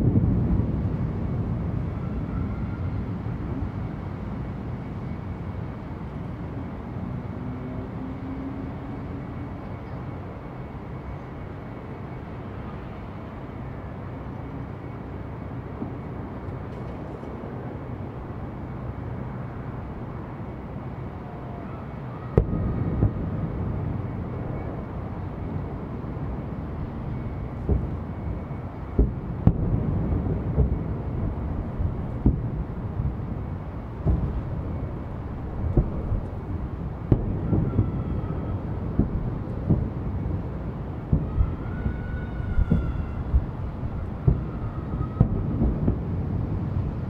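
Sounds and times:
firework burst rumble: 0.0 - 7.7, 22.2 - 47.0
low neighbourhood hum: 0.0 - 47.0.

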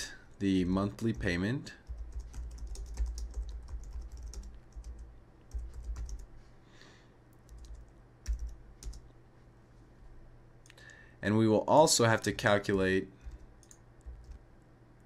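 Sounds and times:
computer keyboard typing: 1.0 - 6.3, 7.4 - 9.1, 13.2 - 14.4.

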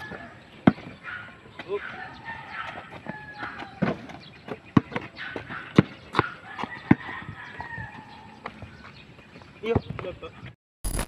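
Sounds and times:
rooster crowing: 0.0 - 0.4, 2.0 - 3.9, 6.4 - 8.4
basketball bouncing on concrete: 0.0 - 1.0, 2.7 - 8.7.

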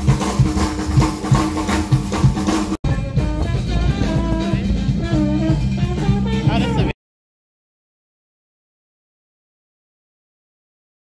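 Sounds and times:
drum-heavy music: 0.0 - 7.0.

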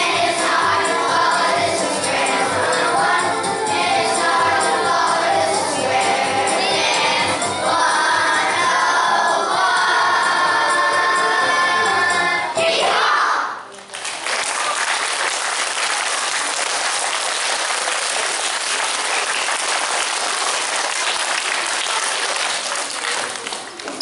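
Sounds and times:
audience applause: 13.8 - 24.0.

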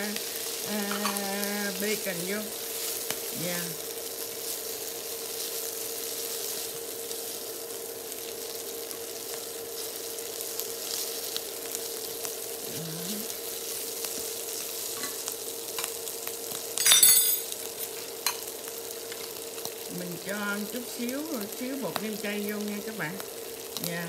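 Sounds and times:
food sizzling in a frying pan: 0.0 - 24.0
chopsticks tapping on pan: 0.9 - 1.2.

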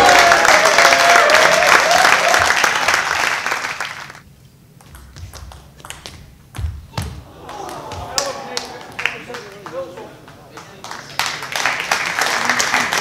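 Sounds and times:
spectators applauding and cheering: 0.0 - 4.2, 7.2 - 13.0
crowd shouting: 7.2 - 8.6.

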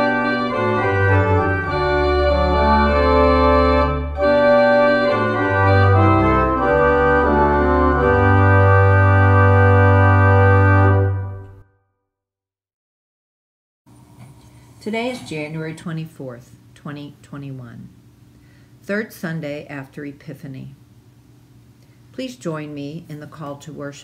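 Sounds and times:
organ playing slow chords: 0.0 - 11.6.

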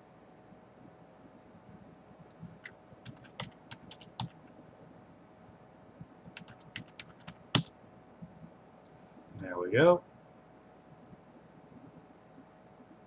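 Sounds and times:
faint steady hum: 0.0 - 13.0
keyboard typing: 2.3 - 4.5, 6.2 - 7.7.

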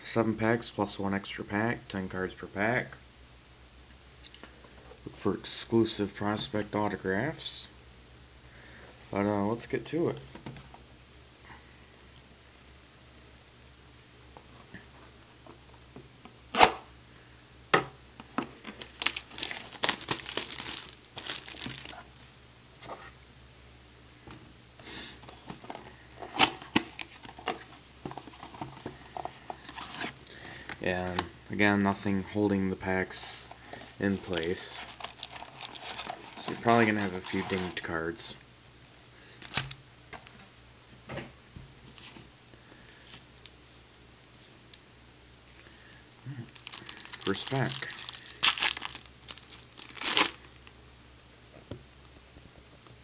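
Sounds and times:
cardboard crinkling and tearing: 18.8 - 22.1, 34.0 - 37.9, 46.5 - 50.4.

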